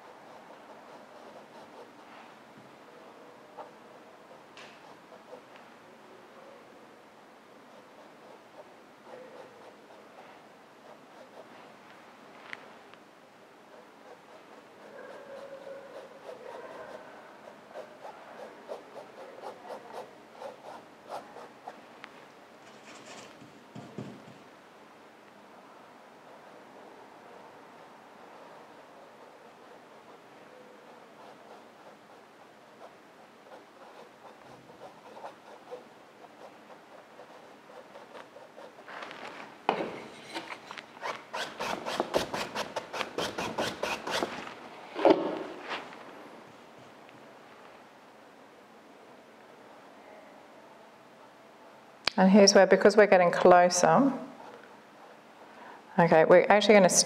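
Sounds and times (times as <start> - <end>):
paintbrush stroking on canvas: 13.7 - 21.8, 27.8 - 44.6, 45.3 - 46.2
paper towel rubbing strokes: 28.3 - 39.7, 45.4 - 46.2
paper towel crinkle: 38.8 - 39.6.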